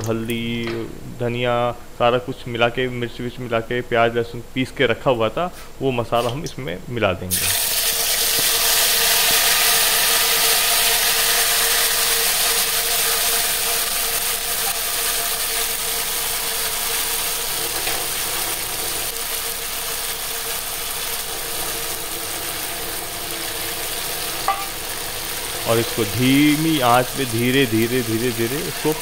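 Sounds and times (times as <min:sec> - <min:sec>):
spice paste sizzling in hot oil: 0:07.3 - 0:29.0.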